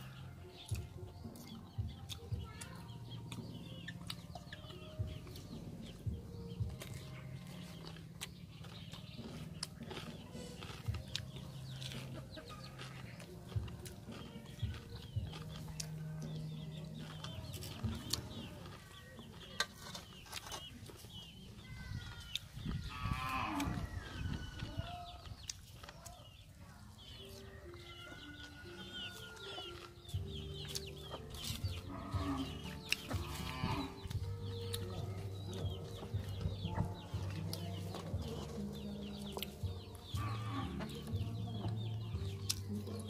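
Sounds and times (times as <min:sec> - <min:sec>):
music with low stepping notes: 0:00.0 - 0:21.4, 0:27.6 - 0:43.0
chickens clucking: 0:00.0 - 0:43.0.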